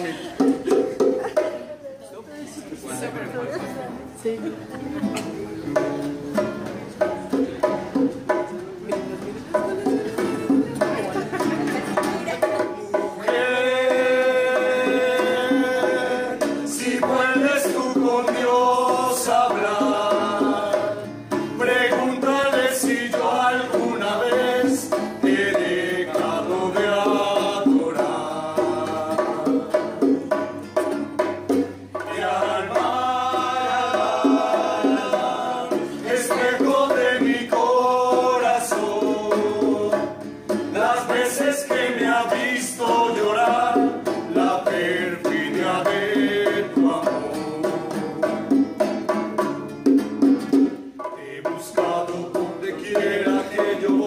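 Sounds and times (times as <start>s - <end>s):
hand drum: 0.0s - 1.9s, 3.0s - 54.0s
strummed acoustic guitar: 0.0s - 54.0s
men singing together: 12.6s - 30.5s, 31.8s - 49.2s, 51.0s - 54.0s.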